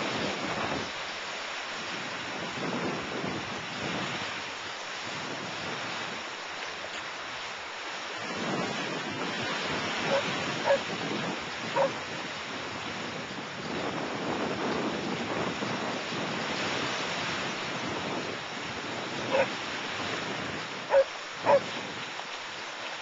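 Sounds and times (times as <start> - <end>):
wind buffeting microphone: 0.0 - 1.0, 1.9 - 4.4, 8.2 - 22.2
ocean surf breaking: 0.0 - 23.0.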